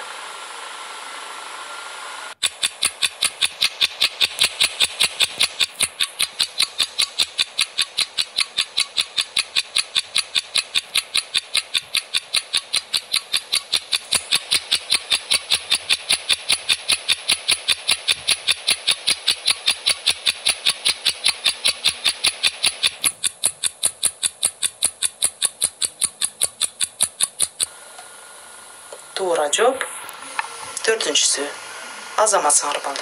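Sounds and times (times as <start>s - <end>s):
steady hiss: 0.0s - 33.0s
rapid countdown ticking: 2.4s - 27.7s.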